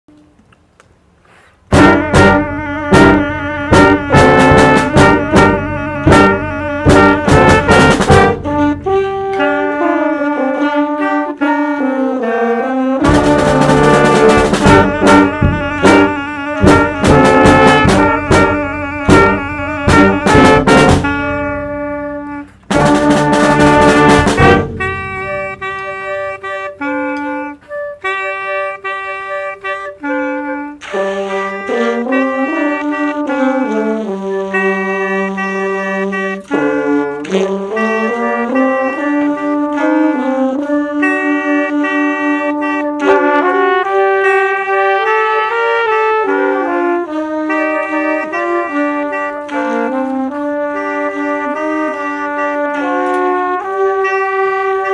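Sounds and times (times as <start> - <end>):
drum strikes: 1.7 - 9.6, 13.0 - 26.8
wind band playing: 1.7 - 54.9.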